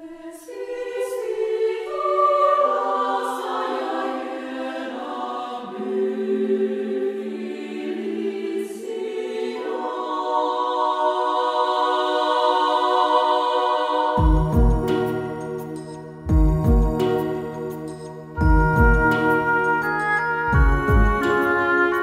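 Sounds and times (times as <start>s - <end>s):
choral voices holding chords: 0.0s - 22.0s.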